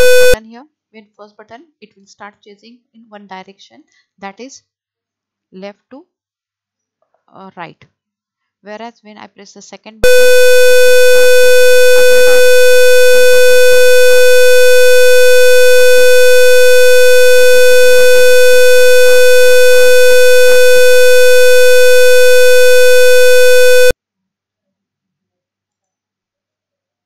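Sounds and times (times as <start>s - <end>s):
harsh electronic buzzer tone: 0.0s - 0.4s, 10.0s - 24.0s.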